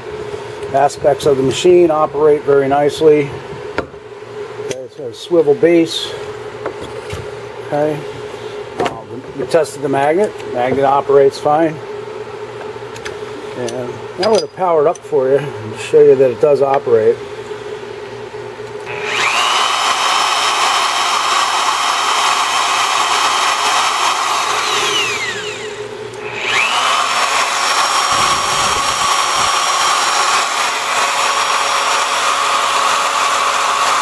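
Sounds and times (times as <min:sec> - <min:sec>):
drill press motor whining: 0:18.7 - 0:34.0.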